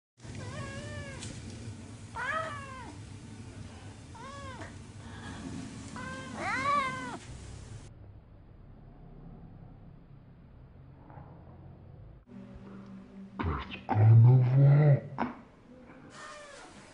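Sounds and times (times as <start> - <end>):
cat meowing: 0.3 - 1.4, 2.2 - 3.0, 4.2 - 4.8, 6.0 - 7.2, 16.1 - 16.8.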